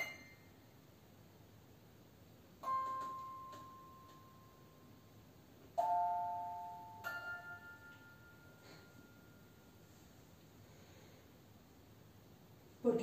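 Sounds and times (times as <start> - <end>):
bell-like chime notes: 5.8 - 9.9.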